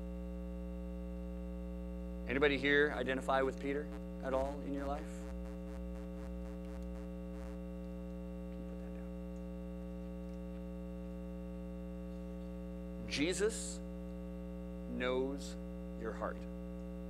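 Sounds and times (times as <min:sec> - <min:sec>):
electrical mains hum: 0:00.0 - 0:17.0.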